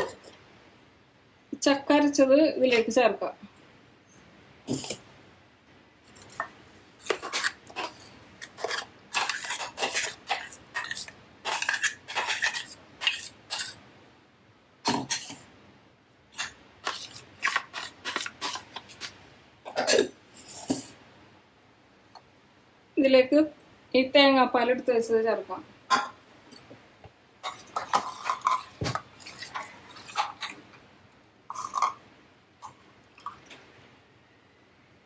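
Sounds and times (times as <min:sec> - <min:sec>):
metal jar scraping against glass bowl: 0:07.0 - 0:13.8, 0:27.4 - 0:30.6, 0:31.5 - 0:32.0.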